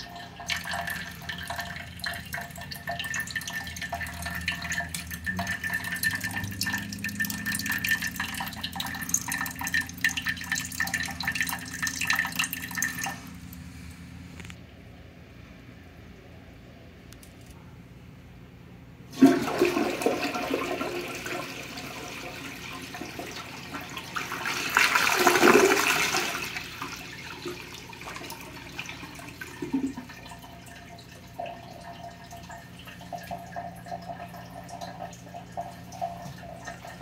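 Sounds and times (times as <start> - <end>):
water trickling and dripping: 0.0 - 13.4, 27.6 - 37.0
toilet flushing: 0.0 - 13.6, 19.1 - 37.0.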